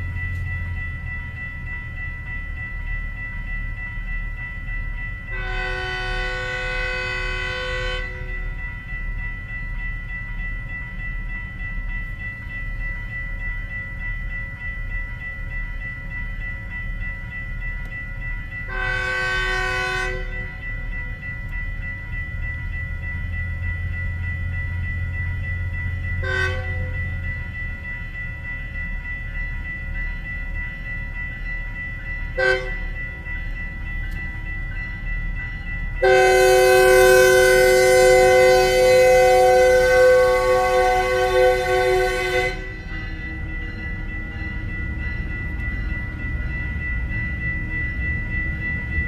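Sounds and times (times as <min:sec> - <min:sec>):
crossing warning bell ringing: 0:00.0 - 0:49.0
low train rumble: 0:00.0 - 0:49.0
train air horn: 0:05.4 - 0:08.3, 0:18.7 - 0:20.3, 0:26.2 - 0:26.7, 0:32.4 - 0:32.7, 0:36.0 - 0:42.7.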